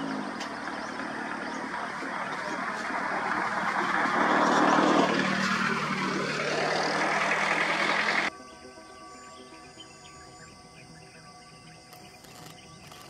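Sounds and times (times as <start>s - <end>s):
vehicle passing: 0.0s - 8.3s
engine humming close by: 0.0s - 13.0s.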